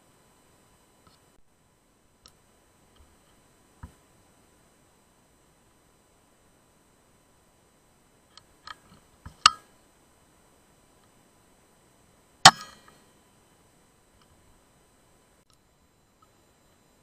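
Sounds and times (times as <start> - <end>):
air rifle shot with ring: 12.4 - 13.0.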